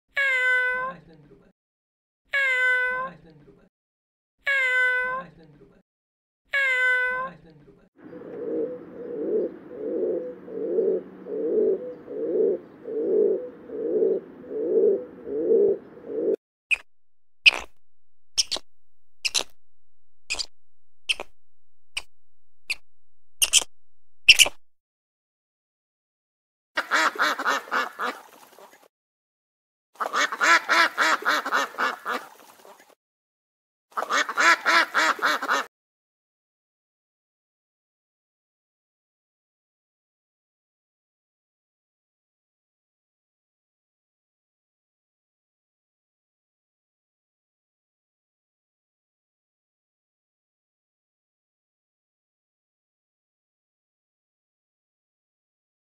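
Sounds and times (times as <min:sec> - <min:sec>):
pigeon cooing: 0:08.0 - 0:16.4
duck quacking: 0:26.8 - 0:28.2, 0:30.0 - 0:32.3, 0:34.0 - 0:35.7.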